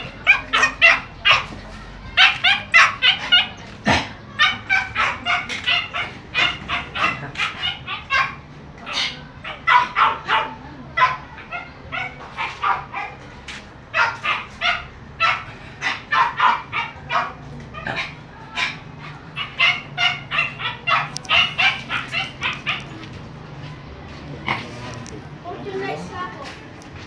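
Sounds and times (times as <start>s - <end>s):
puppy yipping: 0.0s - 3.7s, 4.4s - 13.2s, 14.0s - 23.0s.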